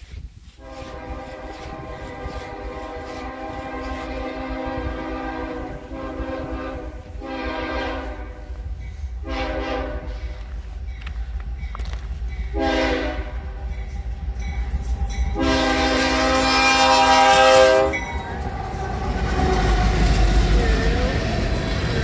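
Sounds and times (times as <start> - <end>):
diesel engines and wheels rumbling: 0.3 - 22.0
locomotive horn blasts: 0.6 - 10.6, 12.5 - 13.6, 15.2 - 19.8.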